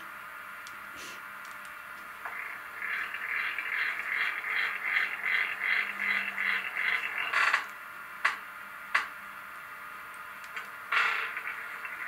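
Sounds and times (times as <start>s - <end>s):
rhythmic mechanical pulsing: 2.1s - 9.2s, 9.8s - 12.0s.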